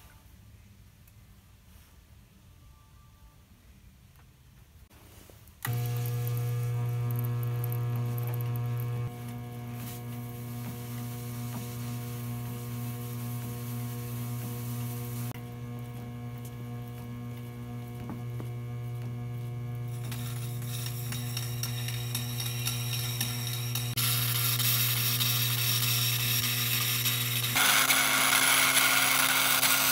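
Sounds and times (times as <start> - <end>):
electric motor humming: 5.6 - 29.9
steel blade scraping on grindstone: 20.0 - 28.0.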